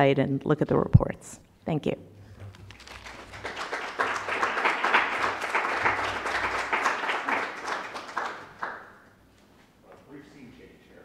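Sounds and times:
audience applauding: 2.4s - 9.1s.

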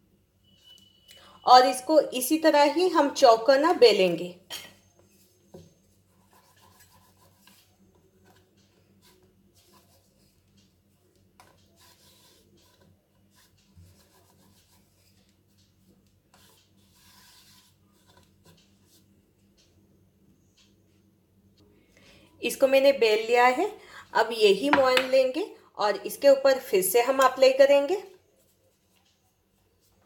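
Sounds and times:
low steady hum: 3.3s - 30.0s
rolling pin rubbing on dough: 5.1s - 10.5s, 11.4s - 19.1s.

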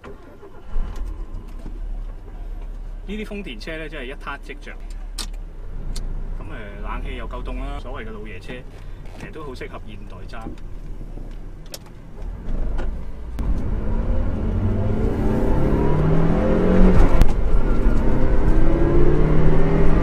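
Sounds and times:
car engine accelerating: 12.1s - 20.0s.

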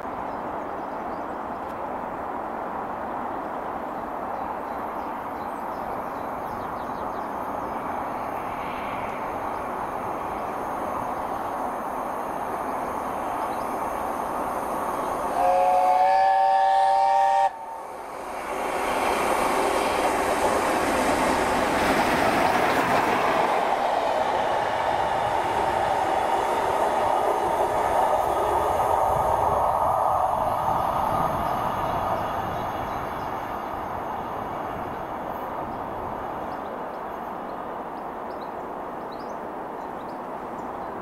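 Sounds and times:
rail and wheel noise: 0.0s - 41.0s
steam locomotive rushing: 7.4s - 37.9s.

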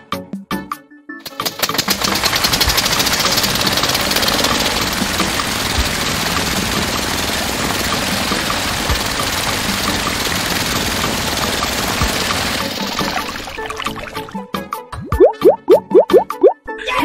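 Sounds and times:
small water pump motor running: 1.3s - 14.2s.

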